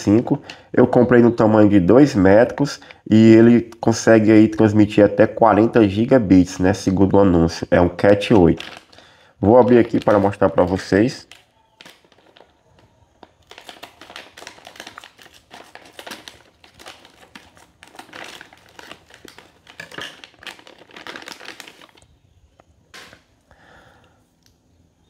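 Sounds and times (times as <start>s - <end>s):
plastic bag crinkling: 8.0s - 22.2s.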